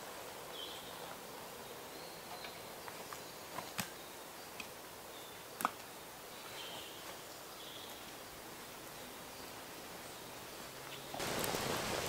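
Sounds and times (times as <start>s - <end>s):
campfire wood snapping: 11.2s - 12.0s.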